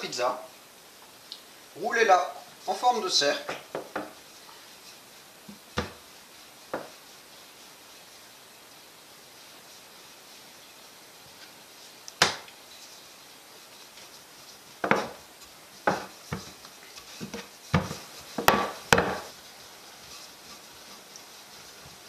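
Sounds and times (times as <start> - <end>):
rolling pin knocking on wood: 3.5 - 4.2, 5.5 - 6.0, 6.7 - 6.9, 14.8 - 19.3.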